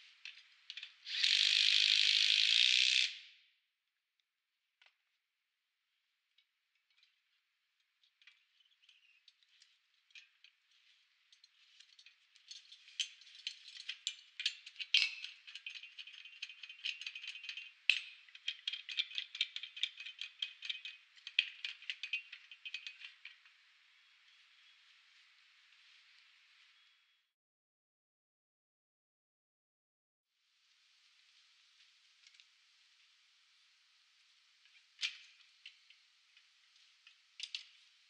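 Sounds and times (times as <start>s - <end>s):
metallic clicks and rattles: 6.8s - 24.2s, 34.7s - 37.9s
faint hiss: 30.4s - 38.0s.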